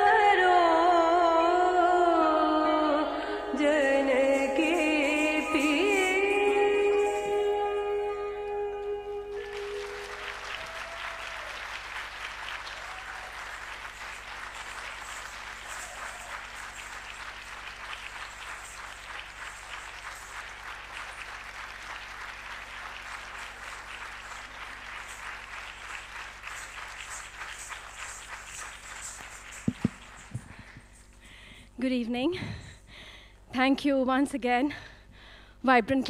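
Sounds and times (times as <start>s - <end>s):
audience applauding: 9.3s - 31.0s.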